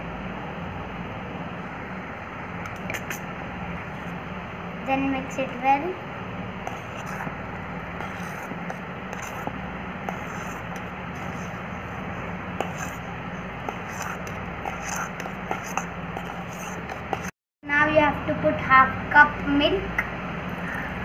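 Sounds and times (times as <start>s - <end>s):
background hum: 0.0s - 21.0s
spoon scraping metal bowl: 2.7s - 3.2s, 12.6s - 13.0s, 13.6s - 17.3s.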